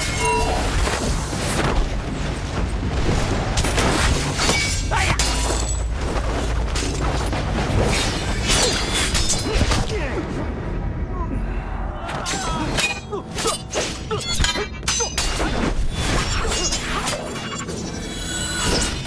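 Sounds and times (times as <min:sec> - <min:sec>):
metallic sword clangs: 0:12.3 - 0:15.6.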